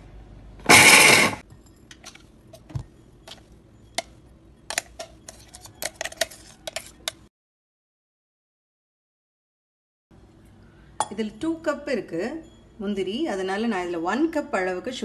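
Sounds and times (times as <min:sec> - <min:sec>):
metal spoon scraping glass bowl: 0:00.8 - 0:07.3.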